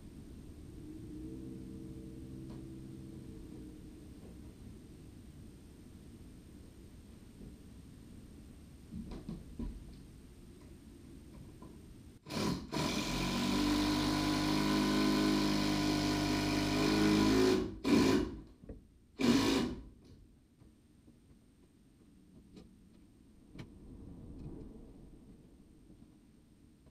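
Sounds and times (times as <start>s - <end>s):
power drill driving screw into wood: 12.3s - 18.5s, 19.2s - 19.9s.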